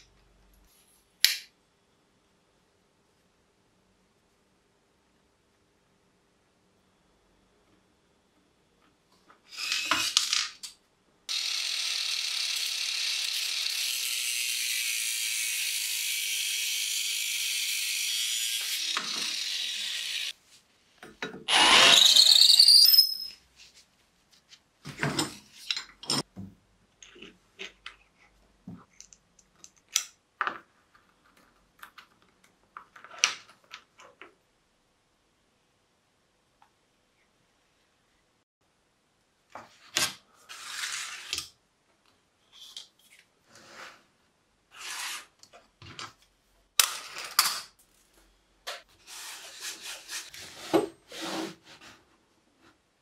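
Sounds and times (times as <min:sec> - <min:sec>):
cordless drill spinning on steel: 0:11.3 - 0:20.3, 0:21.5 - 0:22.7
power tool running: 0:11.3 - 0:20.3
small parts clicking and knocking: 0:28.8 - 0:34.3.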